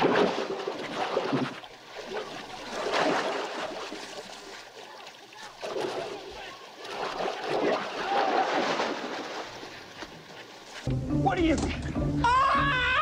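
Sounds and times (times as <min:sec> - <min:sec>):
water splashing and churning: 0:00.0 - 0:10.9.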